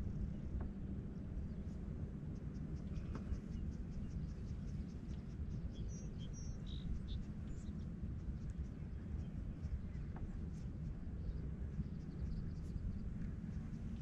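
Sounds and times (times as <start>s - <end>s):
low rumble: 0.0s - 14.0s.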